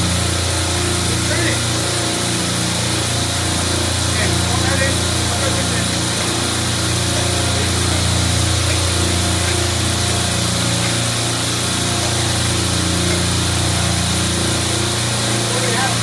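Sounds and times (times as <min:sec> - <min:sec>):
refrigeration compressors droning: 0:00.0 - 0:16.0.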